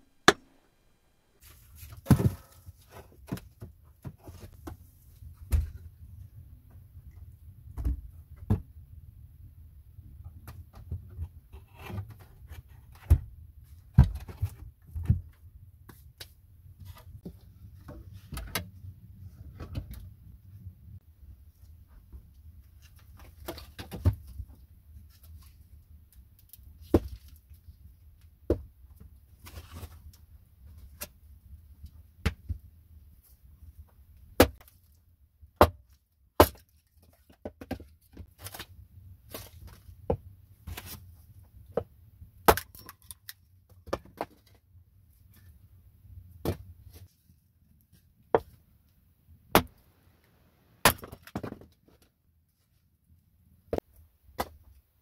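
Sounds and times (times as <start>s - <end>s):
hatchet chopping wood: 0.2s - 0.5s, 50.8s - 51.4s.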